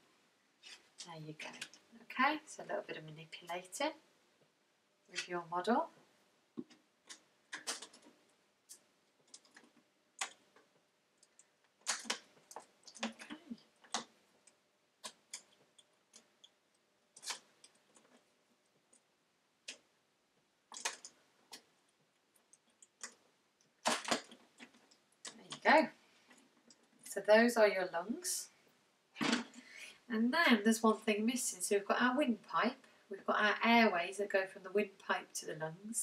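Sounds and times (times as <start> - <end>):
plastic bottle and straws crackling: 6.6 - 19.9, 20.7 - 27.1.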